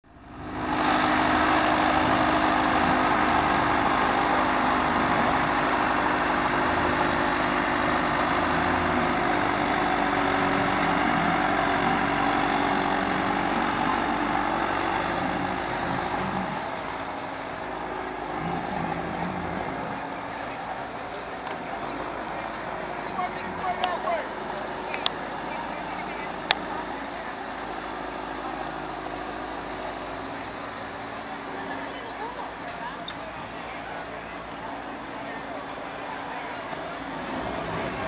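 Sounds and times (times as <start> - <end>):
boat engine running: 0.1 - 38.0.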